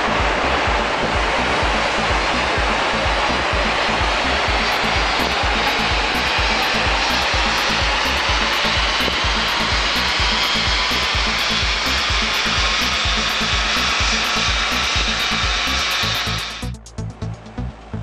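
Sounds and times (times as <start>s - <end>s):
background music with steady beat: 0.0s - 18.0s
diesel engine running hard: 0.0s - 18.0s.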